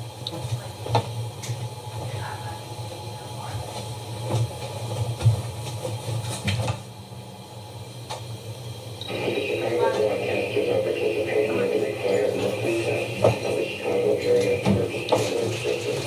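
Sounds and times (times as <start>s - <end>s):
low hum: 8.4s - 16.0s.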